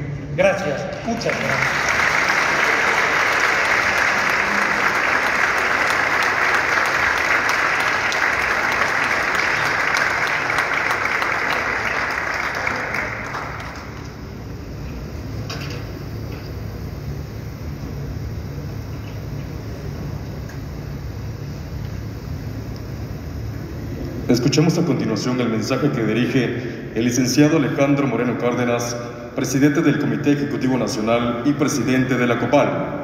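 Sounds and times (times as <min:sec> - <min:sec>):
low steady hum: 0:00.0 - 0:33.0
audience applauding: 0:01.1 - 0:14.2.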